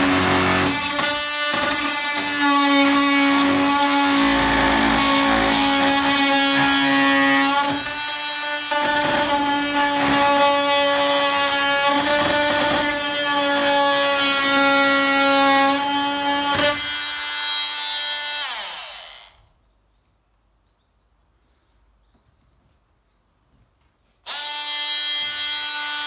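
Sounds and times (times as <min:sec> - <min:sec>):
multi-tool cutting plastic sheet: 0:00.0 - 0:19.3.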